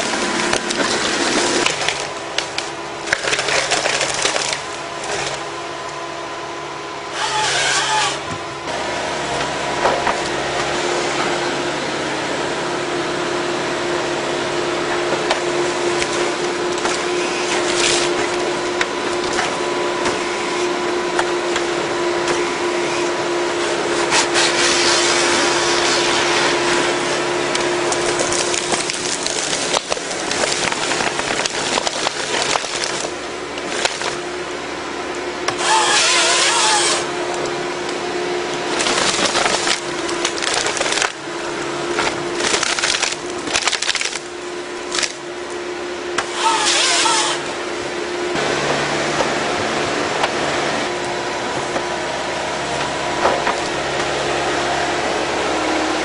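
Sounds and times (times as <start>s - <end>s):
saw cutting through trunk: 0.0s - 6.0s, 7.0s - 12.4s, 13.7s - 34.4s, 35.4s - 45.3s, 46.2s - 47.6s
wood cracking and splintering: 0.0s - 6.0s, 15.1s - 20.3s, 23.8s - 34.3s, 35.4s - 45.6s, 46.2s - 47.4s, 52.7s - 54.2s
engine and hydraulics humming: 0.0s - 56.0s.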